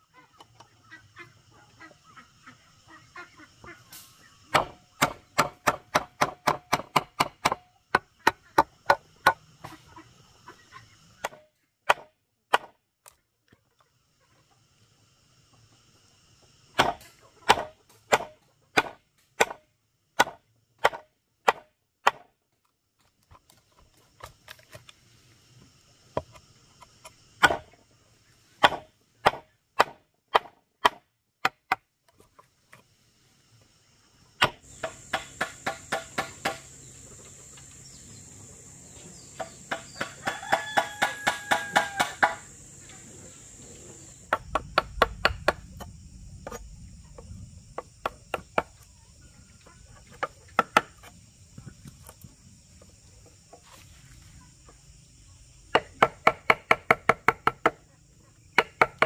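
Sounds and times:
hand tool striking wood: 0:04.5 - 0:09.8, 0:11.2 - 0:12.8, 0:16.8 - 0:19.6, 0:20.2 - 0:22.3, 0:27.4 - 0:27.7, 0:28.6 - 0:31.8, 0:34.4 - 0:36.7, 0:39.4 - 0:42.5, 0:50.2 - 0:51.1.

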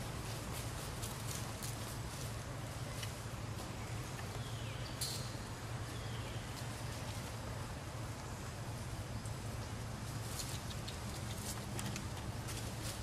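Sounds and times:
low outdoor hum: 0:00.0 - 0:13.0
faint clicks and rustles: 0:09.2 - 0:13.0.

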